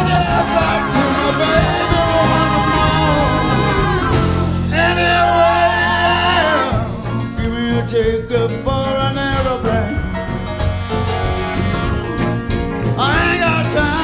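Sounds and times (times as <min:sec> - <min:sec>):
live rock soul band: 0:00.0 - 0:14.0.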